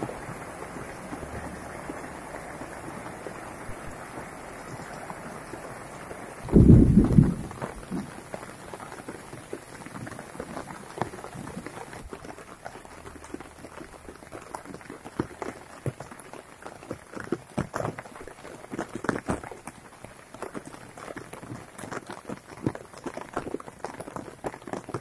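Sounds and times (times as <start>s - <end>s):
light rain falling: 0.0s - 25.0s.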